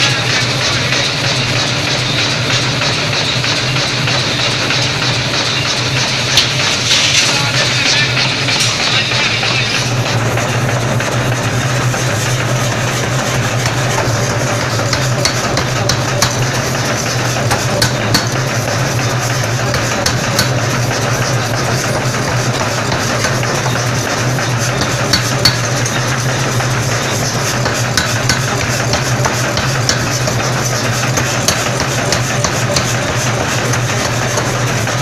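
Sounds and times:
power hammer humming: 0.0s - 35.0s.

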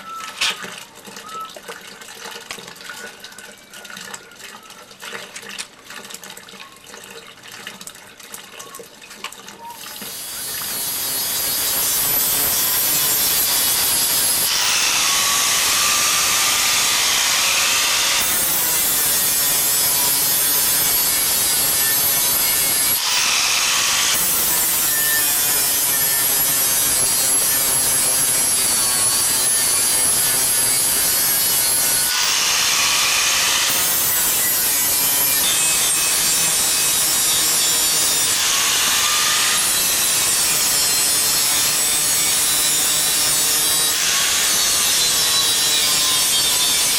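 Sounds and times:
angle grinder polishing metal: 9.9s - 46.9s.

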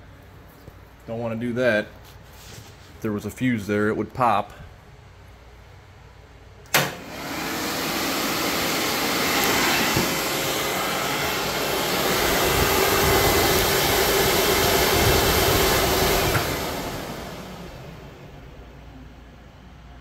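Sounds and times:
electric fan rushing air: 0.0s - 20.0s
faint motor hum: 4.6s - 20.0s
switch click: 6.7s - 7.0s.

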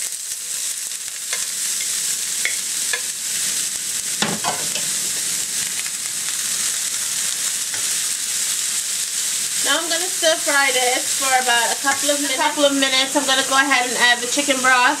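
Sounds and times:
vegetables sizzling in a wok: 0.0s - 15.0s
spatula knocking and scraping wok: 1.3s - 3.2s, 4.2s - 5.2s.

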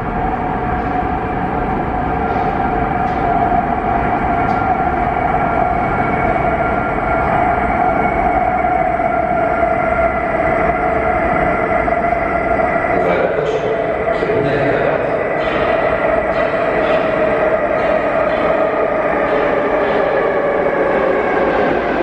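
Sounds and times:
metro train running: 0.0s - 22.0s.

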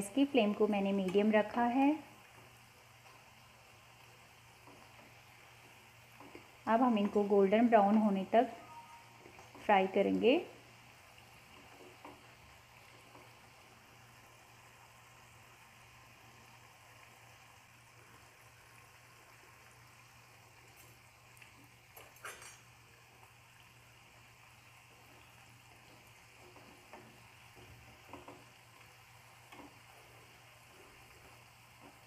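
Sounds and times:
food sizzling in hot oil: 0.0s - 32.0s.

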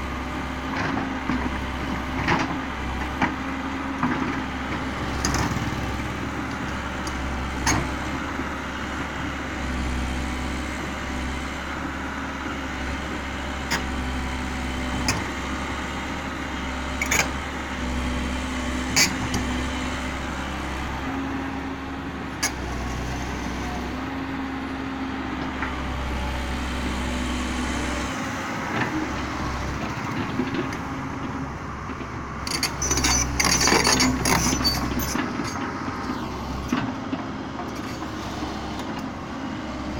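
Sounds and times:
excavator diesel engine idling: 10.8s - 39.9s.

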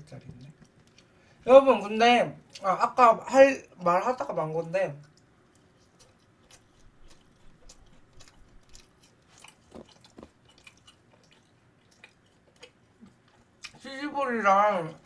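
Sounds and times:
chewing with mouth clicks: 0.1s - 1.3s, 2.4s - 2.7s, 4.9s - 13.9s.

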